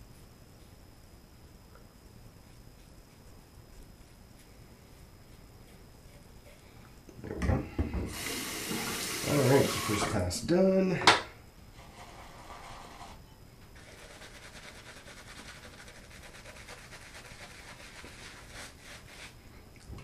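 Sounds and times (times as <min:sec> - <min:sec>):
shaving brush scrubbing swish: 0:13.8 - 0:19.4.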